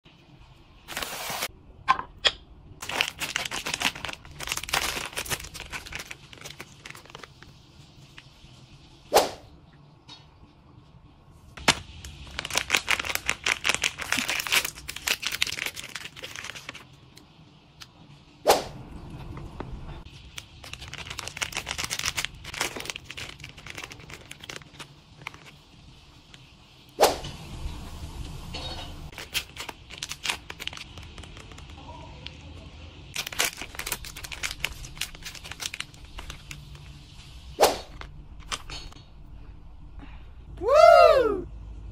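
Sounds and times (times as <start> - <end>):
plastic wrappers crinkling and tearing: 2.8 - 8.4, 11.6 - 17.2, 20.1 - 25.7, 29.1 - 32.4, 33.1 - 37.1.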